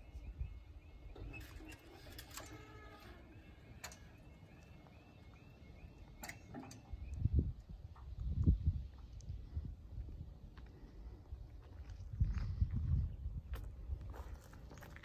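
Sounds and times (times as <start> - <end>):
level crossing alarm warbling: 0.1 - 7.4.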